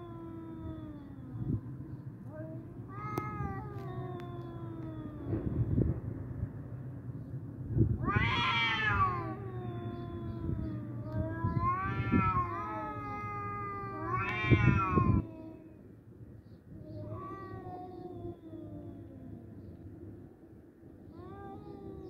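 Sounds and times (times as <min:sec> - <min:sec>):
cats yowling: 0:00.0 - 0:01.6, 0:02.3 - 0:05.5, 0:08.0 - 0:15.8, 0:16.8 - 0:19.7, 0:21.1 - 0:22.0.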